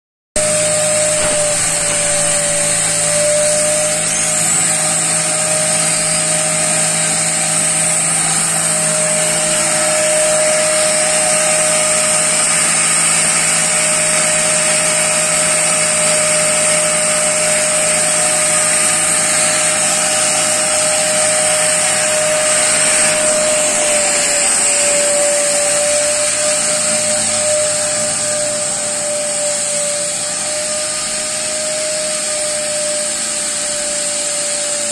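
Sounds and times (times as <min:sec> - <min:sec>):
strong even hiss: 0:00.4 - 0:03.6
machine whine: 0:00.4 - 0:34.9.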